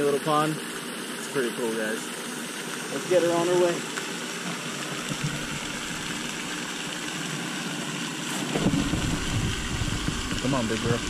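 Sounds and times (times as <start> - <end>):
fountain spray falling on water: 0.0 - 11.0
low rumble: 8.6 - 11.0.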